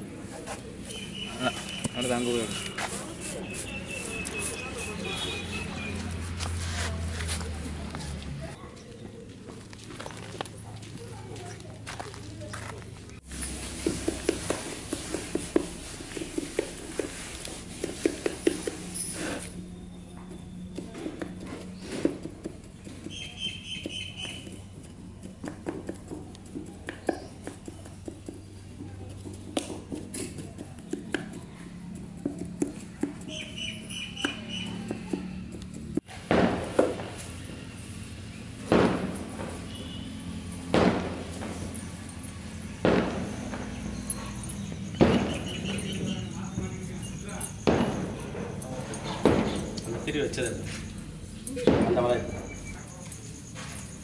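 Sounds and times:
tool tapping paper tubes: 0:13.6 - 0:19.0, 0:23.8 - 0:31.4.

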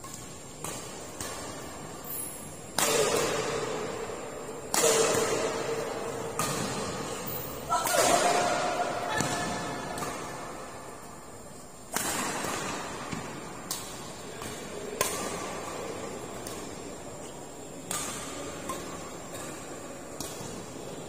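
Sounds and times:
rackets striking a shuttlecock: 0:00.0 - 0:21.0.

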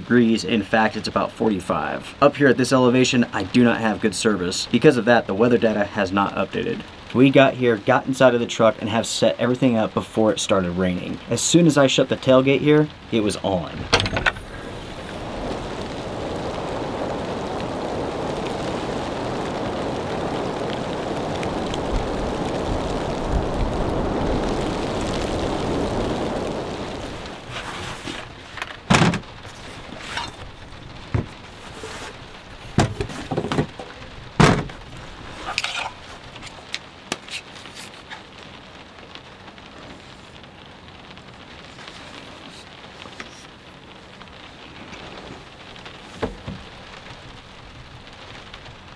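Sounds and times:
heavy rain on truck canopy: 0:00.0 - 0:48.9.

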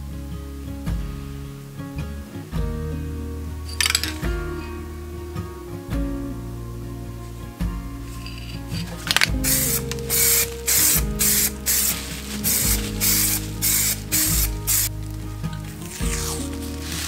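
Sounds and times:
aerosol spray can hissing: 0:09.1 - 0:14.9.

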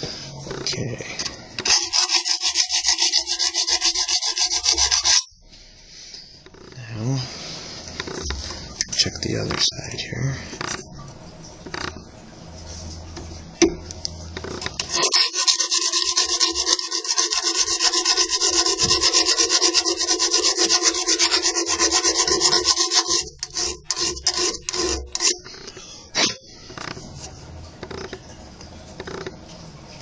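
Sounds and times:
scrapes and taps: 0:01.6 - 0:05.2, 0:14.4 - 0:27.1
hand file rasping on metal tube: 0:01.6 - 0:05.3, 0:14.8 - 0:25.5.

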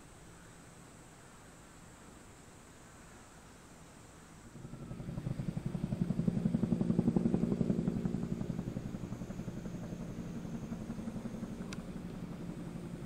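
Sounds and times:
helicopter rotor throbbing: 0:04.4 - 0:13.0.

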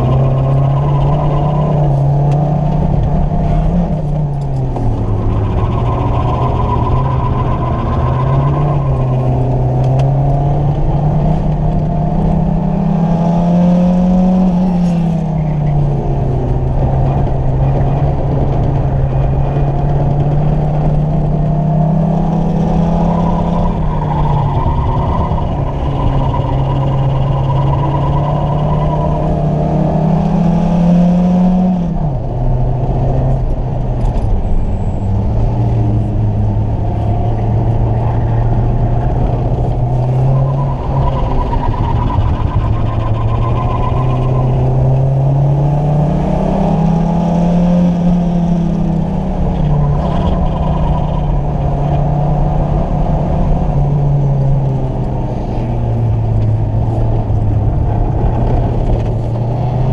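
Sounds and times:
car engine accelerating: 0:00.0 - 0:59.9
road and tyre noise: 0:00.0 - 0:59.9.

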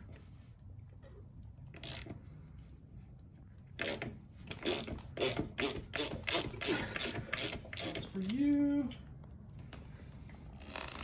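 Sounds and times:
ratchet wrench clicking: 0:01.8 - 0:02.2, 0:03.8 - 0:08.4.

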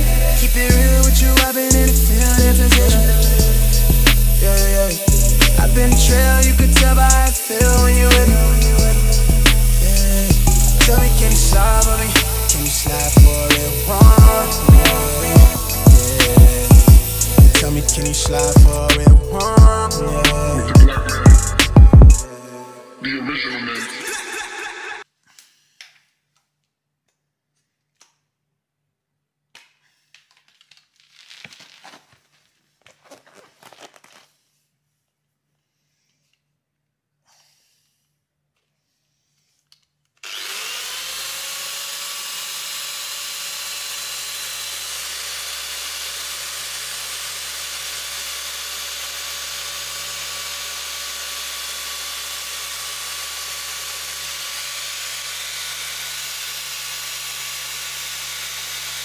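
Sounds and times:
machine polisher motor whine: 0:08.8 - 0:18.5.

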